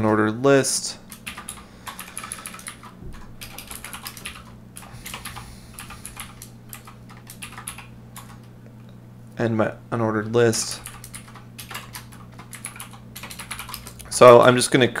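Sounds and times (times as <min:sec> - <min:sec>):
steady low hum: 0:00.0 - 0:15.0
keyboard typing clicks: 0:01.1 - 0:08.5, 0:10.8 - 0:14.1.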